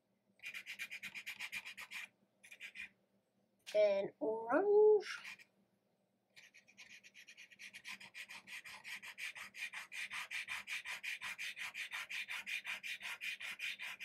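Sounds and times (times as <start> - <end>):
chalk pastel scratching on paper: 0.4 - 2.9, 5.2 - 5.4, 6.4 - 14.0.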